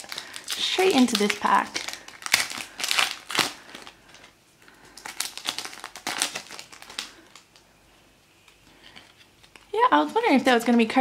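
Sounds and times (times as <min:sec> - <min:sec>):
foil wrapper crinkling: 0:00.0 - 0:07.7, 0:08.4 - 0:11.0.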